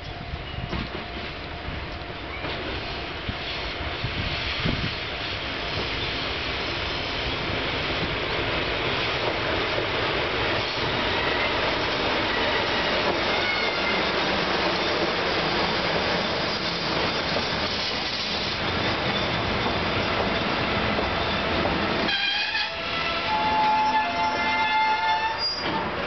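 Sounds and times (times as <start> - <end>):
diesel locomotive passing: 0.0 - 26.0
faint high squeals: 23.2 - 25.9.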